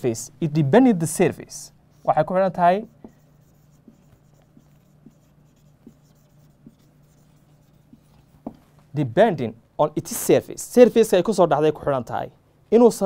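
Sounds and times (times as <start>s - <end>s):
low steady hum: 0.0s - 13.0s
marker writing on whiteboard: 1.9s - 8.8s.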